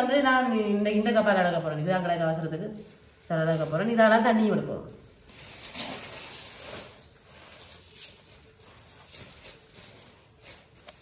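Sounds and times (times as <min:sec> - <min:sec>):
plastic bag rustling and crinkling: 0:02.6 - 0:11.0.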